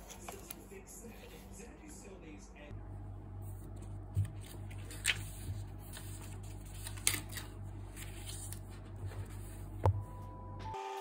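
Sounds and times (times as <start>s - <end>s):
steady low hum: 0.0s - 10.8s
paper rustling and sliding: 3.5s - 9.8s.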